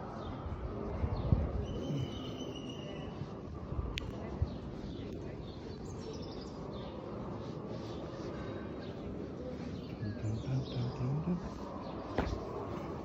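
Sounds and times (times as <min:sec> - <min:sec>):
faint bird chirps: 0:01.5 - 0:03.4, 0:07.7 - 0:13.0.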